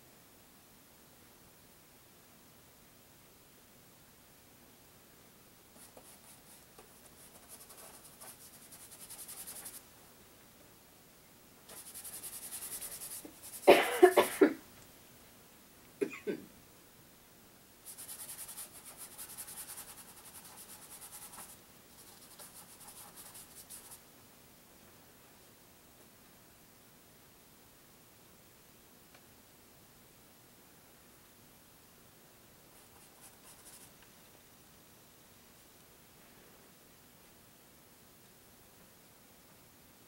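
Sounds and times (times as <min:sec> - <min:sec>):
paintbrush scrubbing on canvas: 0:11.7 - 0:13.7, 0:17.9 - 0:24.0
person coughing: 0:13.6 - 0:14.6, 0:16.0 - 0:16.5.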